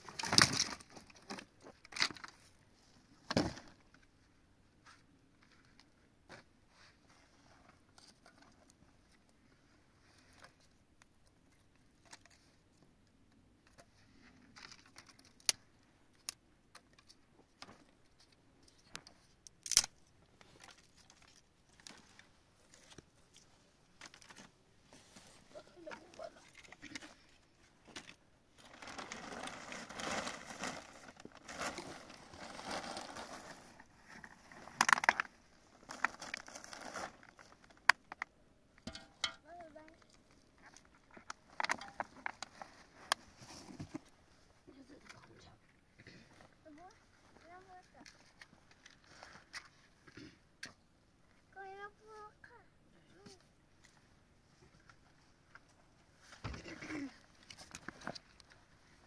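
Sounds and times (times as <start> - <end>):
rustling and scraping: 20.3 - 38.0, 38.9 - 50.4, 53.2 - 59.0.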